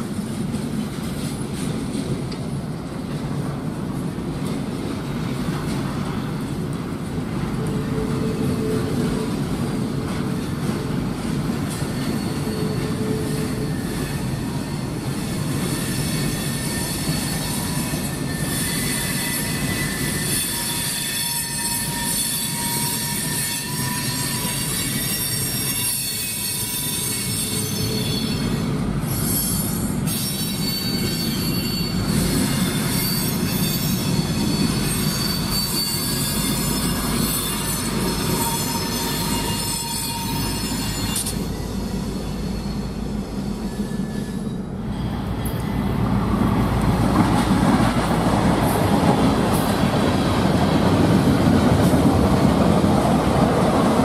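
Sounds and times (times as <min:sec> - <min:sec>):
rumble of train wheels on rails: 0:00.0 - 0:54.0
high wheel squeal: 0:10.3 - 0:46.0.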